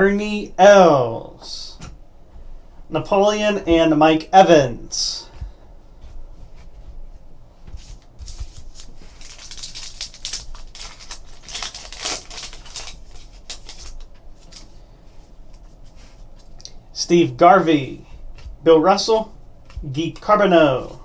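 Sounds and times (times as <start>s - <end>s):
wrapper crackling rustles: 7.9s - 14.8s.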